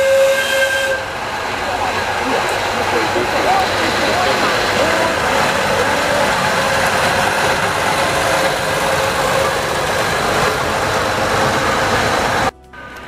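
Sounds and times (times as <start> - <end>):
diesel locomotive engine running: 0.0 - 13.0.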